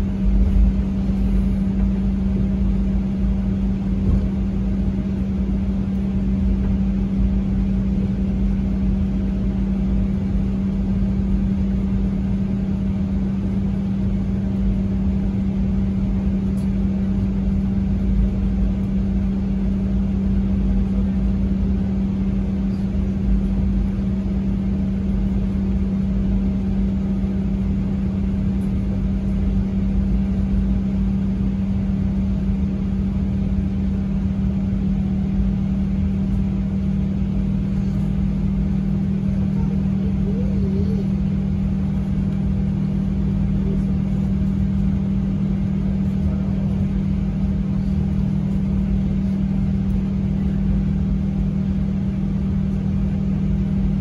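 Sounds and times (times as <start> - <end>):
vehicle drone: 35.8 - 50.6.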